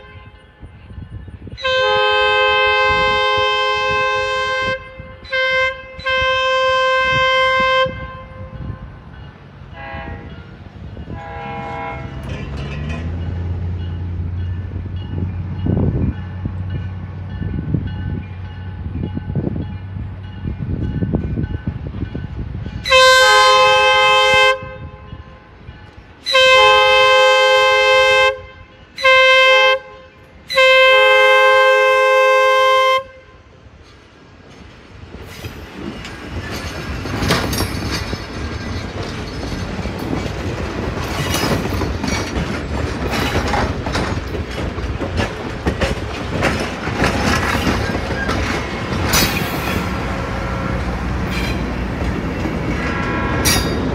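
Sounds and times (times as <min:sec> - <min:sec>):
train air horn blasts: 0:00.0 - 0:00.5, 0:01.5 - 0:09.0, 0:09.7 - 0:10.5, 0:11.1 - 0:12.4, 0:22.8 - 0:25.5, 0:26.2 - 0:33.5, 0:52.7 - 0:53.9
train wheels clattering over rails: 0:10.4 - 0:18.3, 0:33.8 - 0:53.9.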